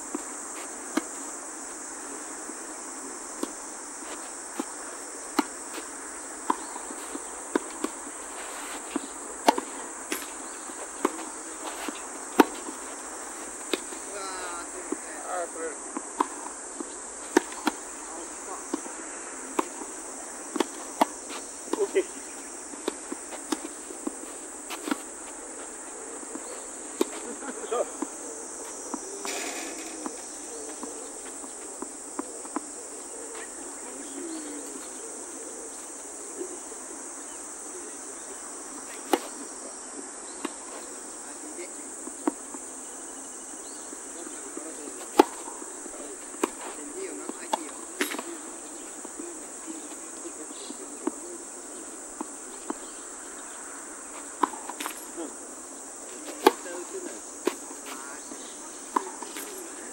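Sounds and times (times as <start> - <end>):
insects droning: 0.0 - 59.9
tennis ball hit by rackets: 8.6 - 10.3, 17.3 - 17.9, 28.9 - 31.4, 45.0 - 45.6, 47.4 - 48.3, 54.4 - 55.0, 56.2 - 56.7.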